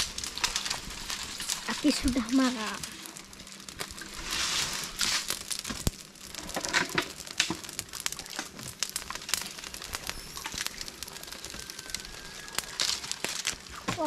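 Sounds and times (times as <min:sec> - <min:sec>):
fronds rustling: 0:00.0 - 0:14.0
palm fronds crackling in fire: 0:00.0 - 0:14.0.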